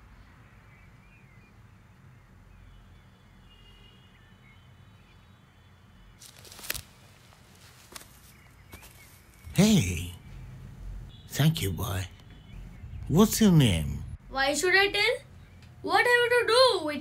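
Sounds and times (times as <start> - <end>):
faint bird chirps: 0.0 - 6.8.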